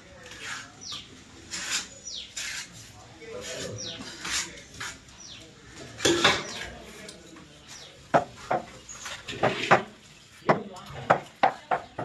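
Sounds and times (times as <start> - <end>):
scraping noise: 0.2 - 5.2.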